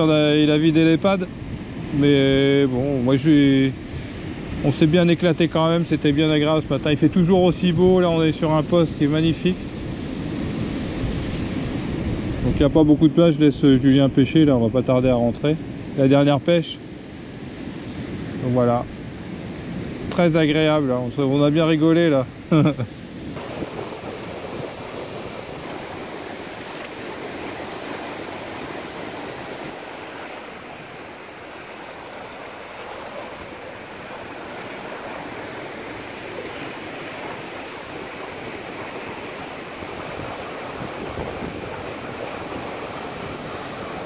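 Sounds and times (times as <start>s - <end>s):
waves breaking on rocky shore: 23.4s - 44.0s.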